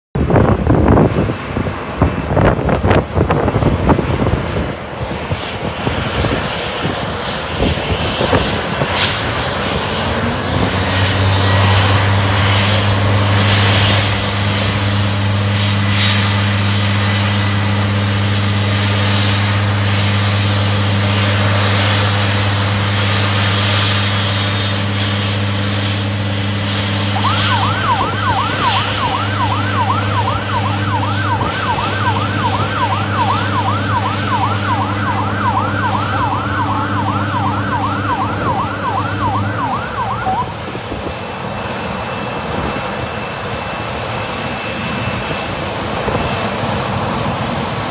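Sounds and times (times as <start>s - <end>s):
jet engines: 0.2s - 47.9s
low engine drone: 0.2s - 47.9s
fire truck siren yelping: 9.7s - 41.0s.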